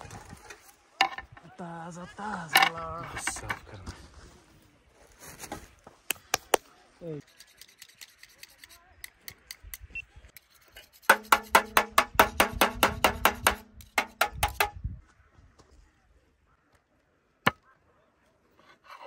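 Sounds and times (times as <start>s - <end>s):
fast sharp knocks: 11.1s - 14.8s.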